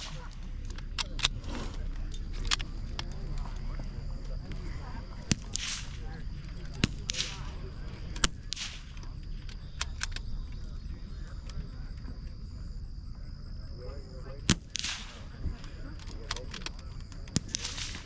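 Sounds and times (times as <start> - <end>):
rifle shots: 5.2 - 6.1, 6.8 - 9.0, 14.5 - 15.4, 17.3 - 18.0.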